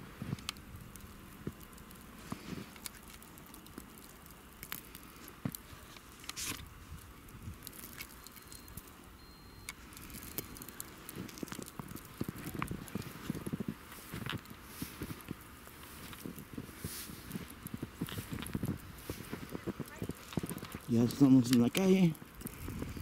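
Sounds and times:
boots stepping through deep snow: 12.9 - 19.8.

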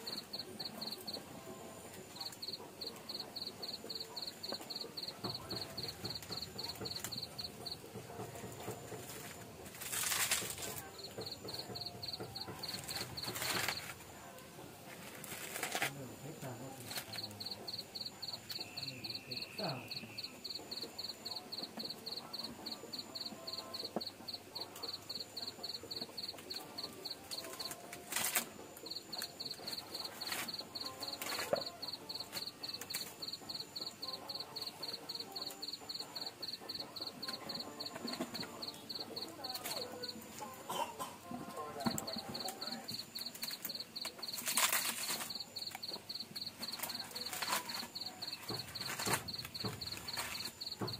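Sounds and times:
insects chirping: 0.0 - 50.9
crackles and rustles: 4.0 - 17.6, 26.2 - 31.6, 42.0 - 50.9
stalks rustling and snapping: 8.9 - 10.9, 12.7 - 14.0, 14.9 - 16.0, 27.3 - 28.6, 31.2 - 31.7, 43.3 - 45.9, 46.6 - 50.9.

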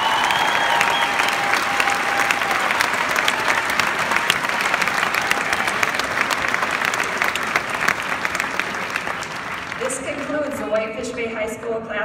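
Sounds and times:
large crowd applauding: 0.0 - 11.3.

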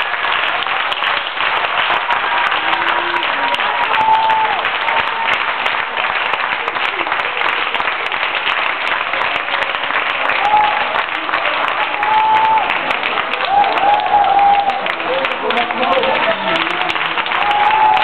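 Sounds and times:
audience applauding: 0.0 - 18.0.

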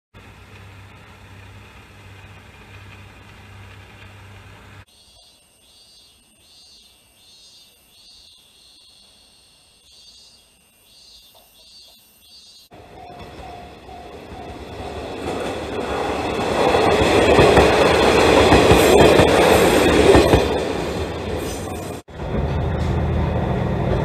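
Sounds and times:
diesel railcar idling: 0.2 - 4.9, 12.7 - 24.0
insects chirping: 4.8 - 21.9.

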